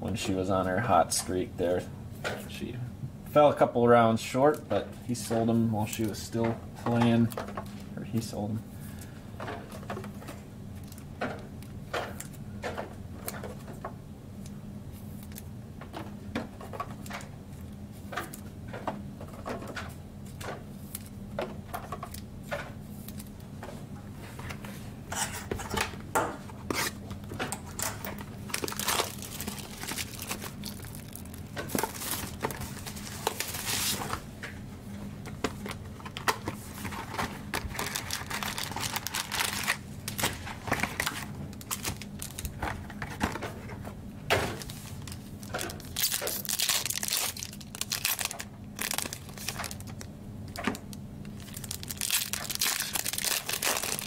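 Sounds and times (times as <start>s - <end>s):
wrapping torn and crinkled: 28.4s - 34.2s, 36.8s - 42.7s, 44.6s - 54.0s.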